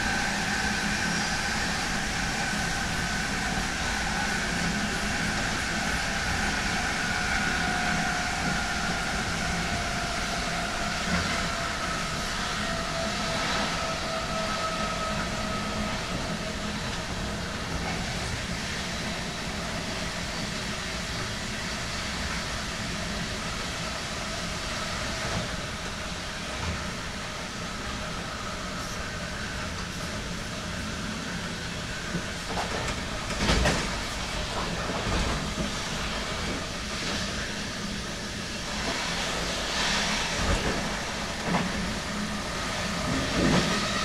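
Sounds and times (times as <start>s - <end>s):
train running noise: 0.0s - 44.0s.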